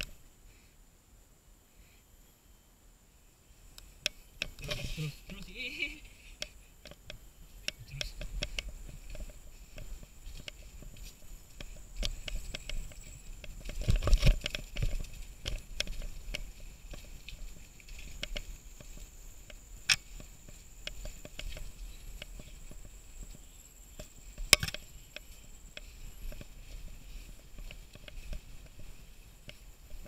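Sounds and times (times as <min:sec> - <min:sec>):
faint high whine: 0:00.0 - 0:30.0
mountain bike rattling and knocking: 0:08.0 - 0:19.0, 0:24.0 - 0:26.5.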